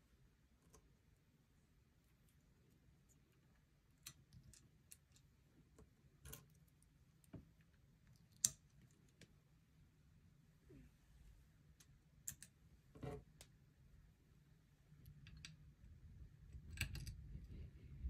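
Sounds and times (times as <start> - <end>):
light clicks and taps of small pieces: 3.1 - 9.4, 11.8 - 12.6, 15.0 - 15.7, 16.5 - 17.3.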